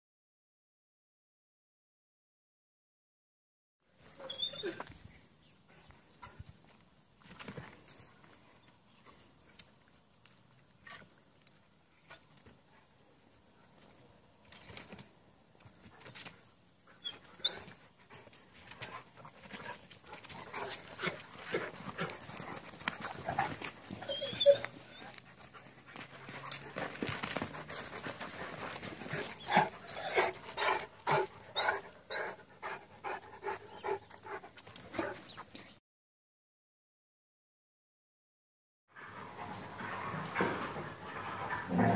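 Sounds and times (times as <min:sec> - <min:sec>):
dogs panting: 0:16.9 - 0:35.6.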